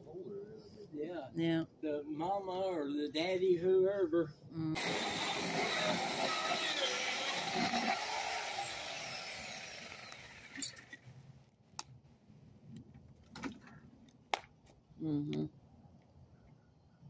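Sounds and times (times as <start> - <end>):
chainsaw cutting wood: 4.8 - 11.0.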